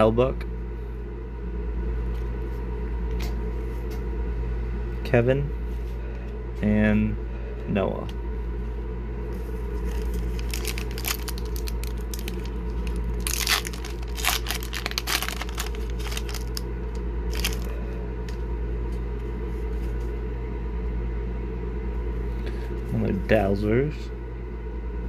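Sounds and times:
steady low hum: 0.0s - 25.0s
foil wrapper crinkling and tearing: 9.8s - 17.8s.

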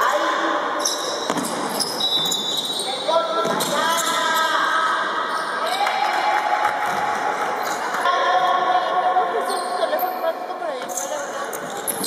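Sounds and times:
crowd hubbub: 0.0s - 12.0s
ball bouncing on wooden court: 1.2s - 2.6s, 3.4s - 4.5s.

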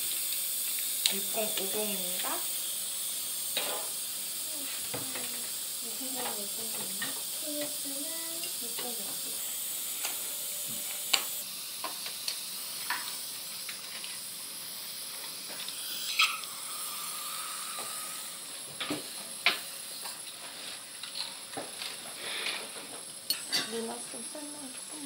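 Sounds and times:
dental suction hiss: 0.0s - 25.0s
thin held tone: 6.3s - 11.4s.

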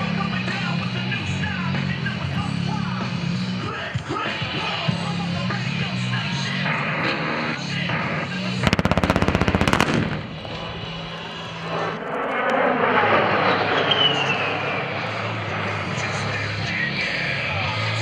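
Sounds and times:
simulated cannon fire rattle: 8.6s - 11.4s
jet engines passing with whine: 9.5s - 15.8s.

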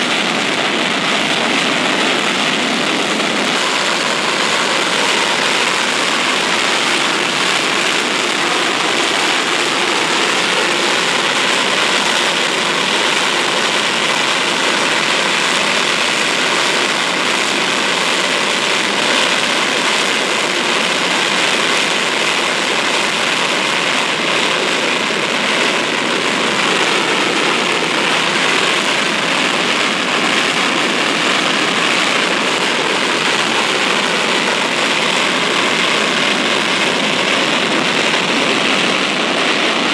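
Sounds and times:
distant jet engine idling: 1.2s - 16.2s.

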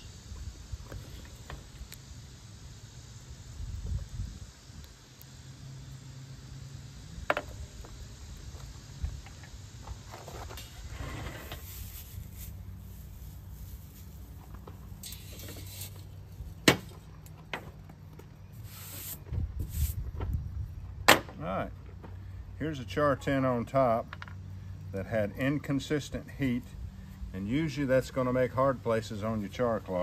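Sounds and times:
metal tin clinking and scraping: 15.0s - 16.0s.

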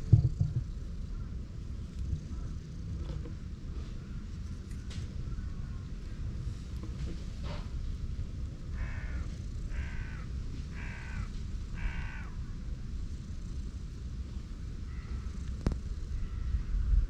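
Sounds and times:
steady low rumble: 0.0s - 17.0s
crow cawing: 8.7s - 12.4s, 14.9s - 15.3s, 16.2s - 16.6s.

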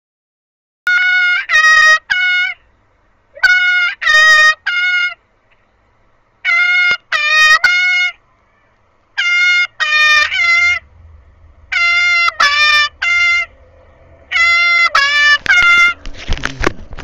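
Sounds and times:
high trumpet-like calls: 0.9s - 2.6s, 3.4s - 5.2s, 6.4s - 16.2s.

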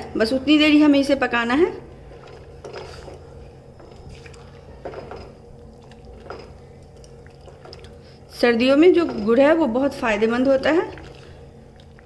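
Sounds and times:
low steady hum: 0.0s - 12.0s
liquid sloshing: 2.0s - 12.0s
spatula scraping pan: 8.4s - 10.5s.

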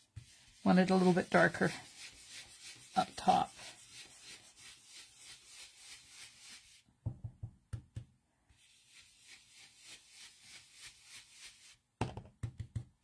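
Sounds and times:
soft brushing on cardstock: 0.0s - 6.8s, 8.5s - 11.8s.

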